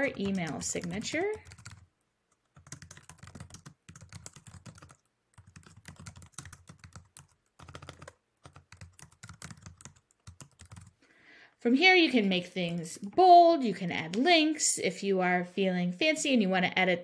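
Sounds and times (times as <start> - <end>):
typing on keyboard: 0.0 - 11.0.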